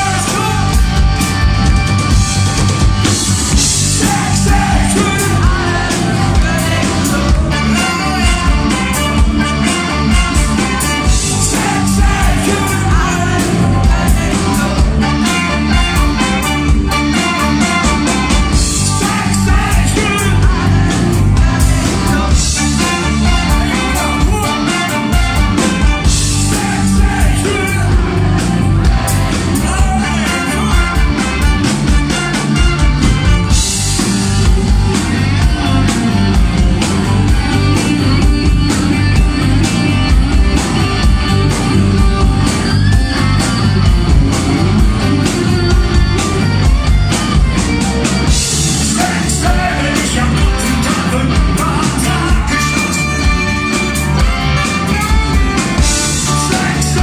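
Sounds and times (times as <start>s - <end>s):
male lead vocal: 0.0s - 1.1s, 3.7s - 16.5s, 17.1s - 31.6s, 48.7s - 53.9s, 55.8s - 57.0s
live rock band playing: 0.0s - 57.0s.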